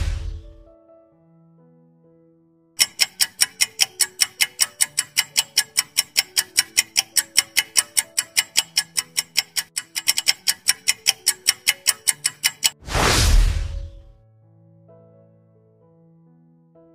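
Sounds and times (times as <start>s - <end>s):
rapid clock-like ticks: 2.8s - 12.8s.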